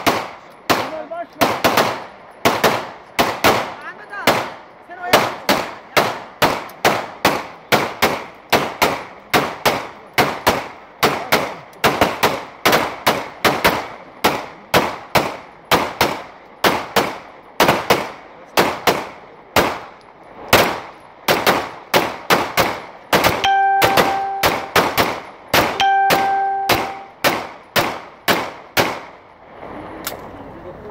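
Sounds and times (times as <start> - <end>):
rapid pistol shots: 0.0 - 29.2
steady tone: 23.4 - 24.8, 25.8 - 27.2.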